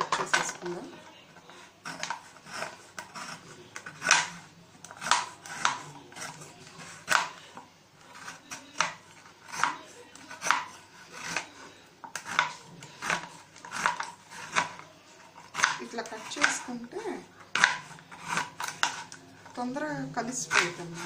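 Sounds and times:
knife chopping on cutting board: 1.8 - 7.4, 8.2 - 14.8, 15.4 - 16.8, 17.5 - 19.2, 20.4 - 21.0.

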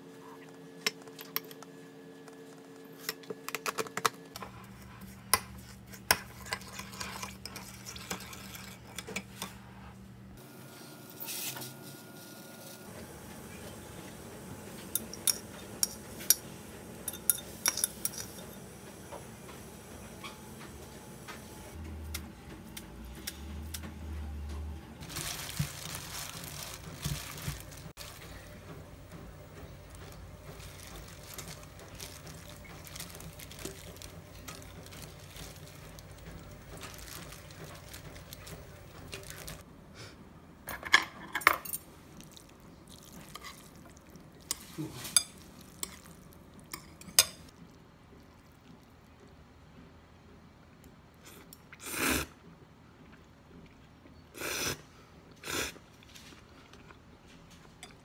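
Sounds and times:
metal utensils clinking on pot: 17.1 - 18.6.

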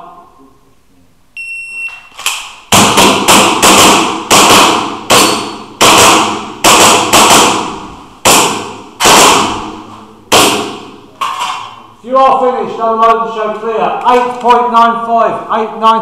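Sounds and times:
airsoft pistol shots: 2.2 - 11.7.

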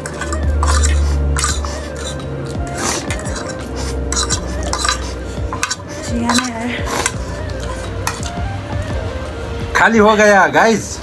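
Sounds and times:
forks scraping and clinking on plates: 0.0 - 8.3.

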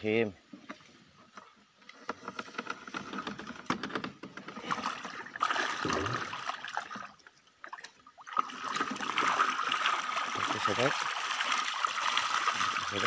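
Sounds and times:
water splashing and trickling: 4.4 - 13.0.

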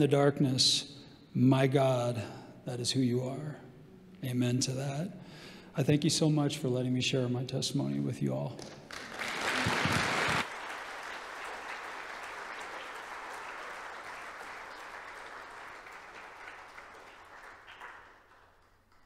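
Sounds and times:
congregation applauding: 8.6 - 19.0.

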